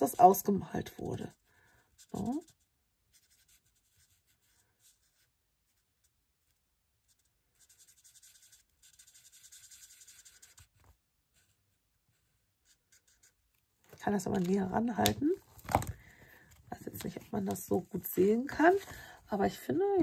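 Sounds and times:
marker scratching on card: 1.9 - 13.4.

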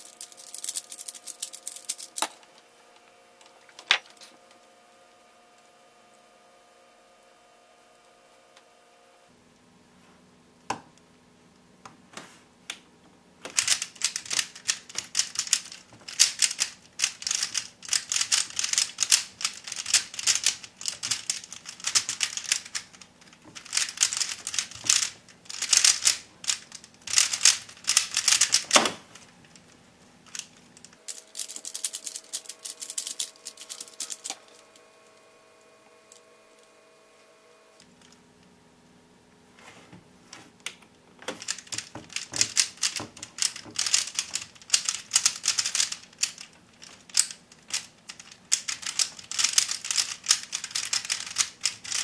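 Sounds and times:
puzzle cube turning clatter: 0.0 - 2.4, 13.5 - 29.7, 30.3 - 34.6, 41.3 - 52.0
puzzle cube clicks: 41.3 - 52.0.

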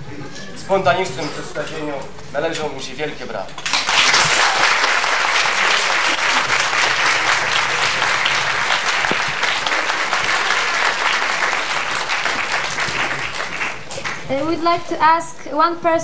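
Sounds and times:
audience applauding: 3.6 - 14.4.

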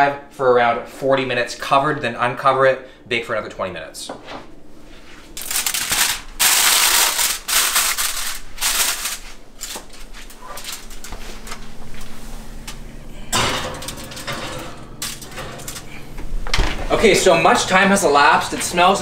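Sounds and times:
aluminium foil crinkling: 5.4 - 16.1
oven door clatter: 12.7 - 18.5.

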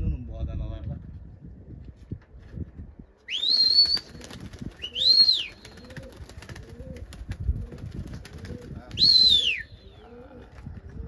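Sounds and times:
human whistles rising and falling: 3.3 - 4.2, 4.8 - 5.9, 8.9 - 10.1
faint pigeon coos: 9.7 - 11.0.

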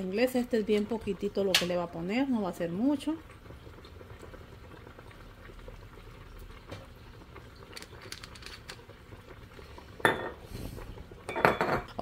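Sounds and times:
soup boiling with small pops: 0.0 - 12.0.

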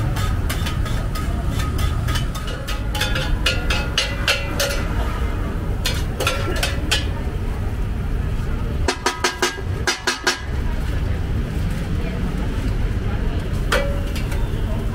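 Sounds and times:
utensils and dishes clinking: 0.0 - 5.1, 5.7 - 7.4, 8.8 - 10.7, 13.5 - 14.9
traffic rumble: 0.0 - 14.9.

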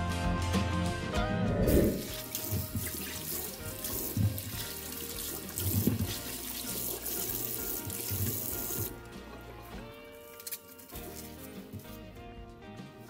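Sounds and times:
tap running into sink: 2.1 - 12.0.

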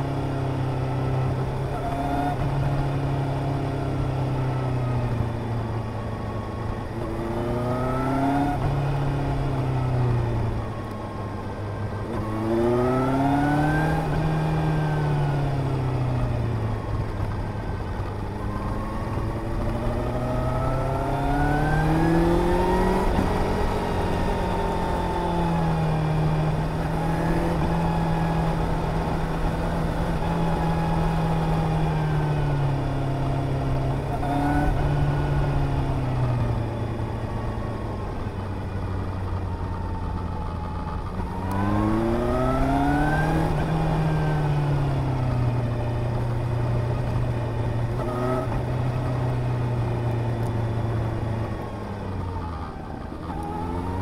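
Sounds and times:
wind and road noise: 0.0 - 54.0
motorcycle engine revving: 12.0 - 54.0.

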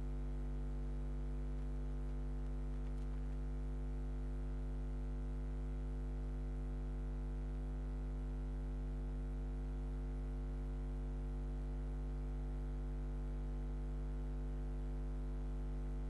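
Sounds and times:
electrical mains hum: 0.0 - 5.8.

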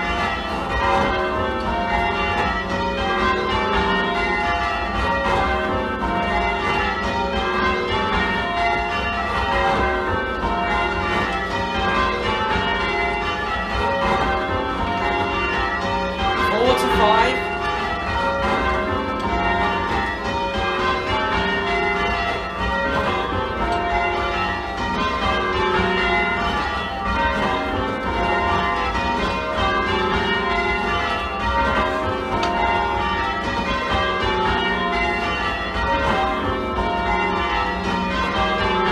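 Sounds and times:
church bells ringing: 0.0 - 38.9
person calling out: 16.4 - 17.4.

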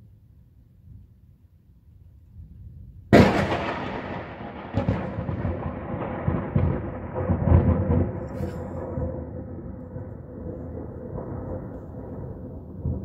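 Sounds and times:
rolling thunder rumble: 3.0 - 13.0
thunderclap crack: 3.1 - 13.0.

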